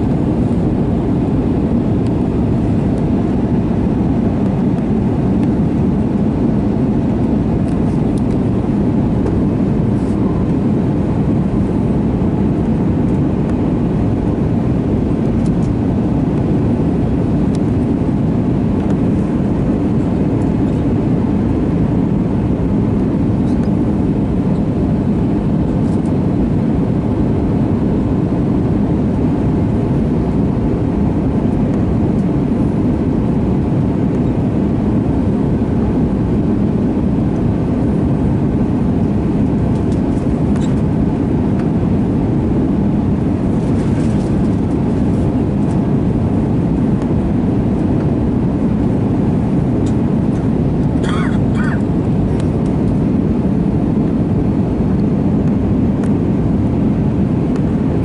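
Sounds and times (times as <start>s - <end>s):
airliner cabin rush: 43.4s - 46.2s.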